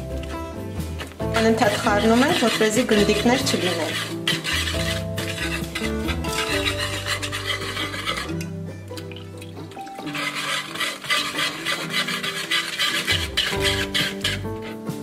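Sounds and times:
background music: 0:00.0 - 0:15.0
metal whisk scraping a pot: 0:00.0 - 0:15.0.

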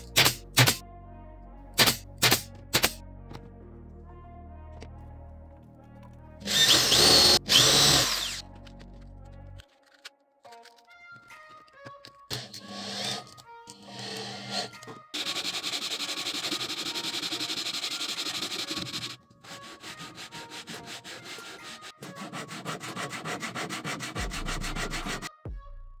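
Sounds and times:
sandpaper rasping on wood: 0:15.2 - 0:25.3.

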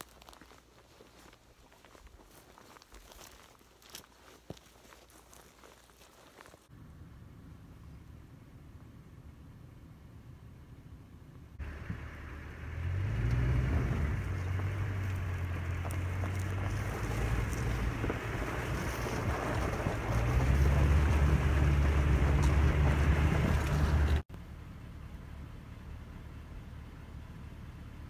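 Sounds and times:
wind blowing across microphone: 0:13.6 - 0:24.2.

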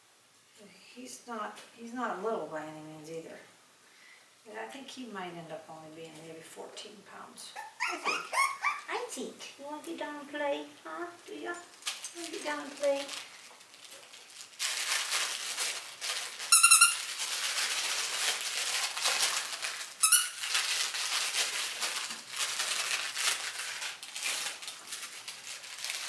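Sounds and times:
puppy high squeaks: 0:07.6 - 0:08.9, 0:16.5 - 0:17.1, 0:20.0 - 0:20.4.

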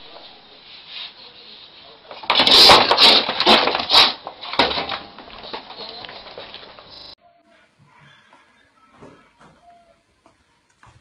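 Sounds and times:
cat and rat scuffling: 0:02.0 - 0:07.2.

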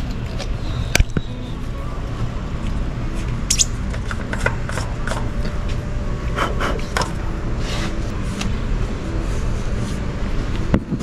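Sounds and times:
steady low hum: 0:00.0 - 0:11.0
oil cap clicking and scraping: 0:03.5 - 0:05.3.

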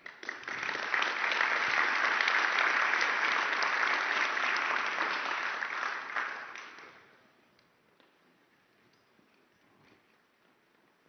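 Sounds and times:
audience applause: 0:00.0 - 0:07.1.

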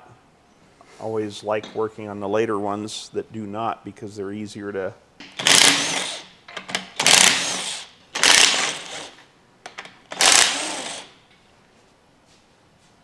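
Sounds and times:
power tool spinning socket: 0:05.4 - 0:09.2, 0:09.8 - 0:11.2.

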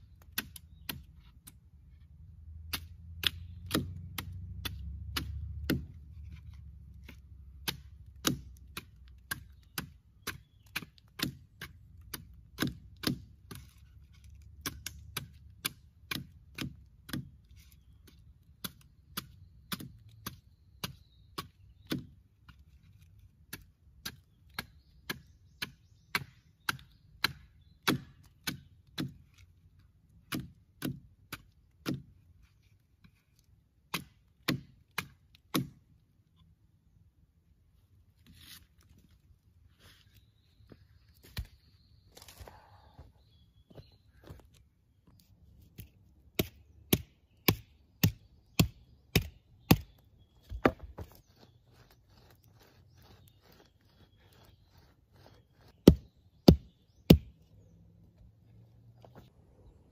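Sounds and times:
blade chopping wooden branch: 0:02.5 - 0:29.5, 0:30.2 - 0:32.2, 0:33.8 - 0:35.9, 0:41.2 - 0:42.4, 0:45.7 - 0:57.4.

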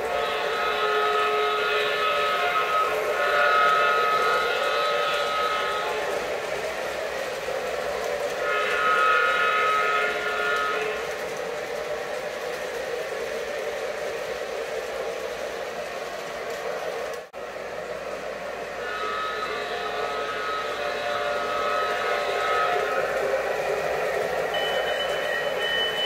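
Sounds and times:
train horn blast: 0:00.0 - 0:06.5, 0:08.3 - 0:11.3, 0:18.7 - 0:26.0
model train wheels and motors rumbling: 0:00.0 - 0:26.0.

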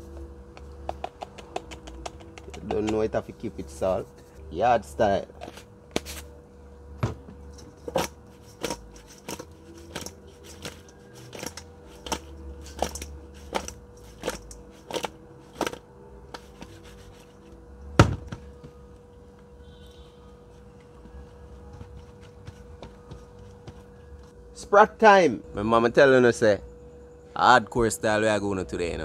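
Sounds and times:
seasoning shaker taps: 0:00.5 - 0:03.1.

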